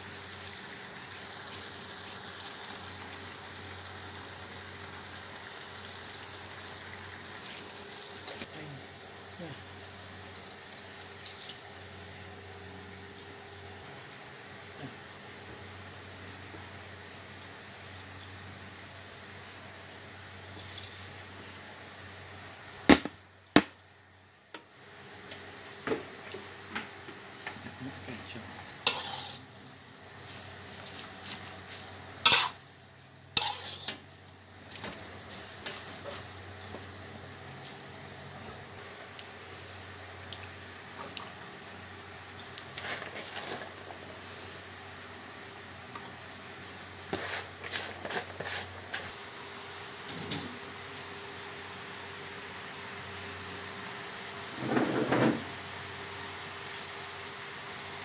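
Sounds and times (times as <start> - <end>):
noodles sizzling in a wok: 0.0 - 23.4, 28.5 - 40.9
metal spatula clanking on wok: 28.9 - 29.4, 32.3 - 32.6.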